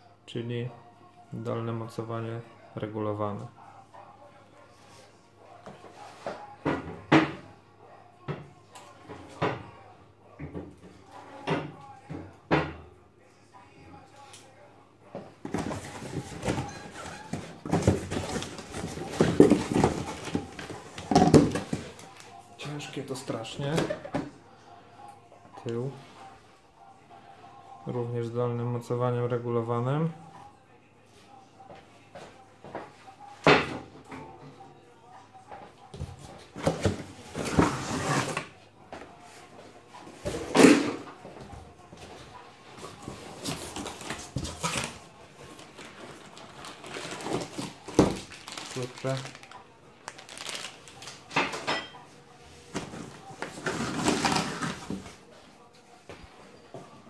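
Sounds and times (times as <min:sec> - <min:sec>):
cardboard rustling and scraping: 0:15.5 - 0:22.1, 0:36.5 - 0:38.5, 0:52.7 - 0:55.2
cardboard scraping and rustling: 0:36.6 - 0:38.5, 0:52.9 - 0:55.1.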